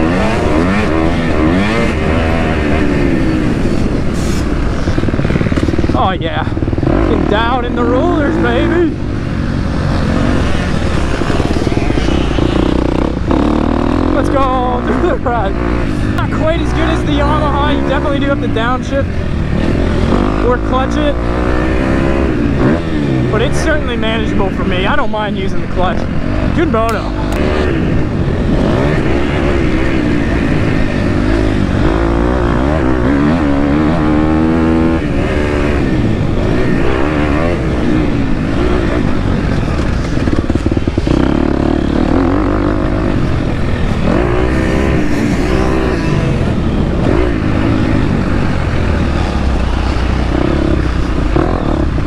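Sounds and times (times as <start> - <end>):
motocross bike engine revving: 0.0 - 52.0.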